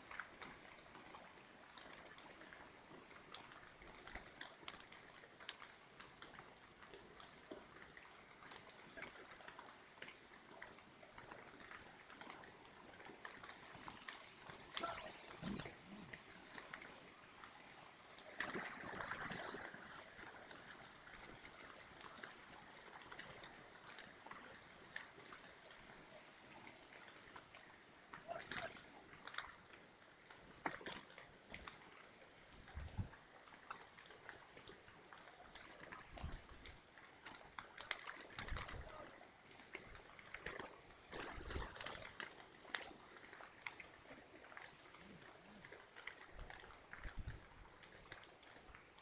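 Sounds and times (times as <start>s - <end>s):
faint steady hiss: 12.0s - 28.7s
light ticks: 13.4s - 26.2s.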